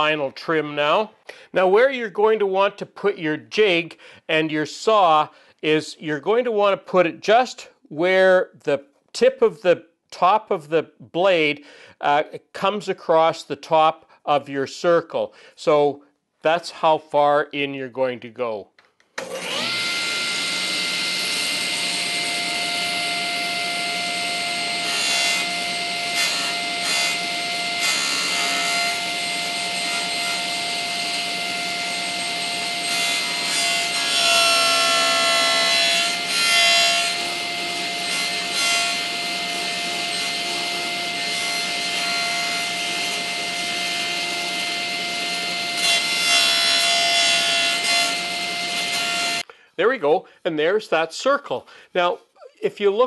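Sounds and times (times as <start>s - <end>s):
saw blade rasping board: 19.2s - 49.4s
table saw whine: 19.2s - 49.4s.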